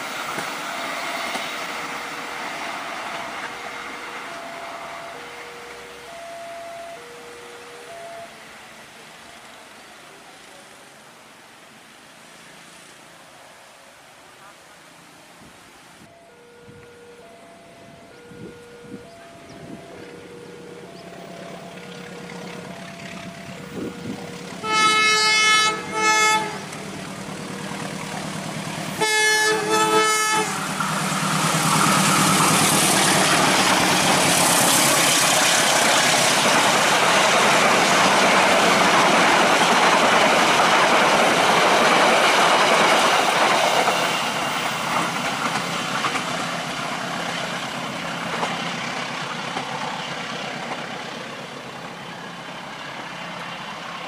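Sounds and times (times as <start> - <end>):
train wheels on rails: 0.0 - 11.0, 15.4 - 54.0
locomotive engine drone: 0.0 - 12.1, 16.0 - 54.0
locomotive horn blasts: 23.7 - 26.8, 28.9 - 30.7.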